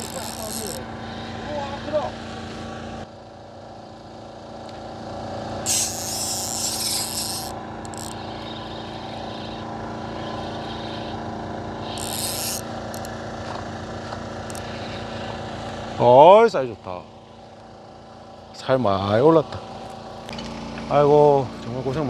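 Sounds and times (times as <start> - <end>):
loud hissing rasp: 0.0 - 2.1, 5.6 - 11.2, 11.8 - 13.1, 14.5 - 15.4
boat engine running: 0.0 - 22.0.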